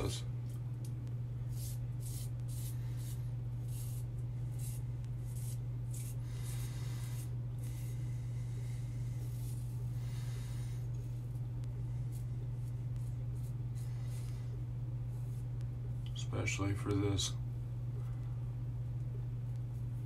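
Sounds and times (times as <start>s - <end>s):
steady low hum: 0.0s - 20.0s
razor scraping stubble: 1.4s - 8.1s, 8.9s - 15.6s.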